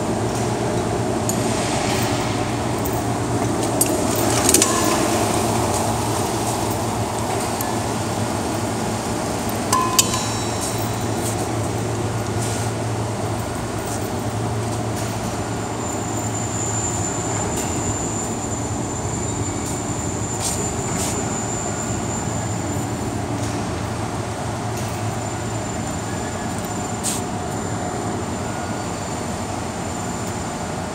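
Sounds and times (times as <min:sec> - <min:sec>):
industrial machinery hum and hiss: 0:00.0 - 0:30.9
thin high whine: 0:01.4 - 0:14.4.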